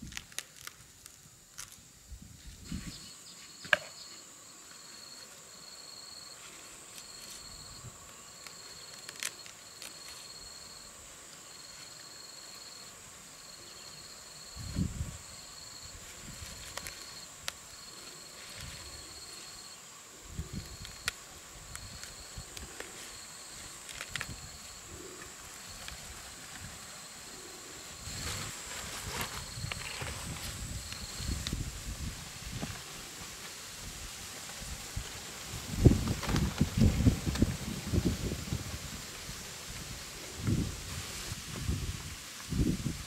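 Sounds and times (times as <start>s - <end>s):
insect steady high buzz: 0.0s - 43.0s.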